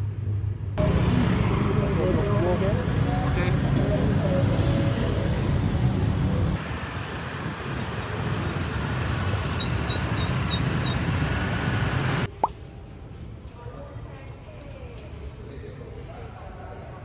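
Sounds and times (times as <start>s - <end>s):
road traffic hiss: 0.8s - 12.3s
motorbike engines: 0.8s - 12.4s.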